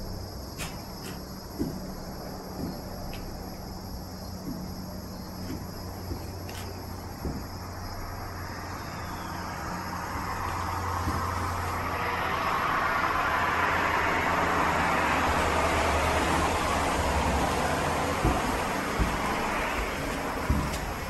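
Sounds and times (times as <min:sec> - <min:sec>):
passing vehicle rushing: 0:07.6 - 0:21.0.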